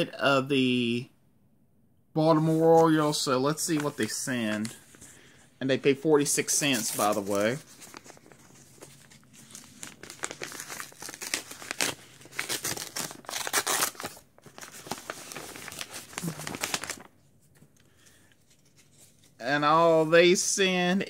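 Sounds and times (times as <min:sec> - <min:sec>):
paper envelope tearing and rustling: 0:06.3 - 0:17.1.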